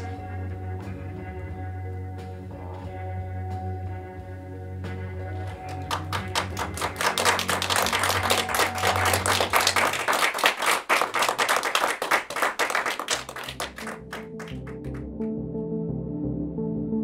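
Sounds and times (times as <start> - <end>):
ambient music drone: 0.0 - 10.7, 12.7 - 17.0
hand clapping applause: 5.4 - 15.1.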